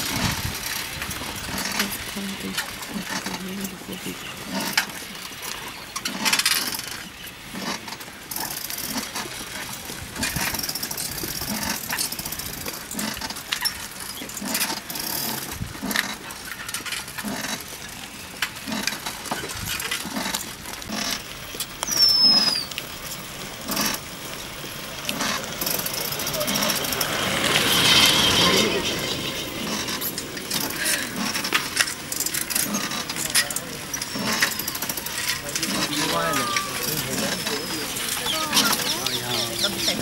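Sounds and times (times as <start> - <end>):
cycle rickshaw rattling and creaking: 0.0 - 40.0
falling whistled bird call: 21.8 - 22.7.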